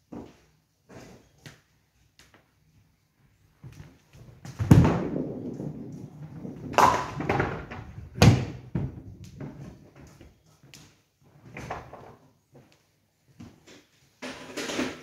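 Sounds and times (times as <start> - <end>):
bowling ball rolling rumble: 4.4 - 9.7
bowling ball heavy thud: 4.5 - 9.1
bowling pins crashing: 4.5 - 9.2.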